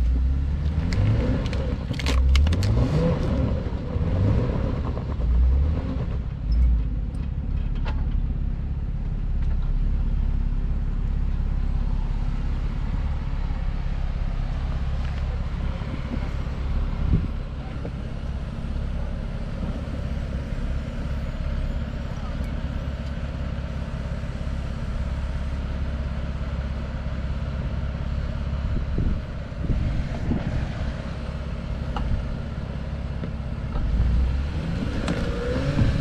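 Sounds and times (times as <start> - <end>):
vehicle engine revving: 0.0 - 6.5, 28.5 - 36.0.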